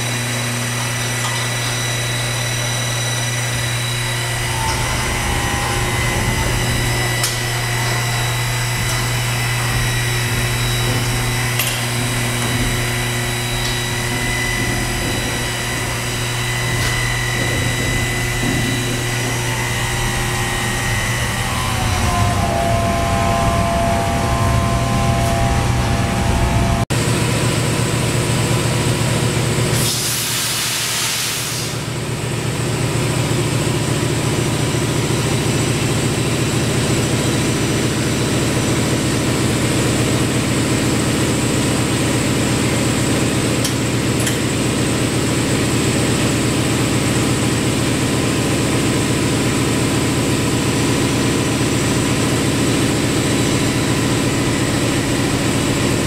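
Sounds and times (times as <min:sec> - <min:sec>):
vacuum lifter machine hum: 0:00.0 - 0:30.4
air hissing: 0:29.8 - 0:31.9.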